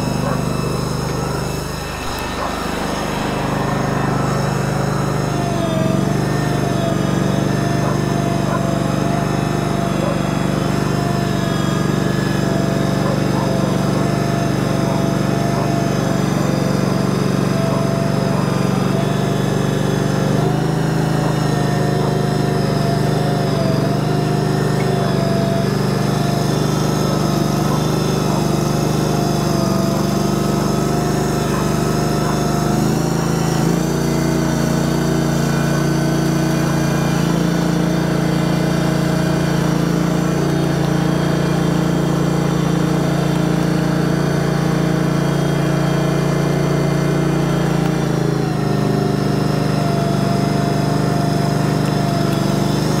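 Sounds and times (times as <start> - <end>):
small engine running: 0.0 - 53.0.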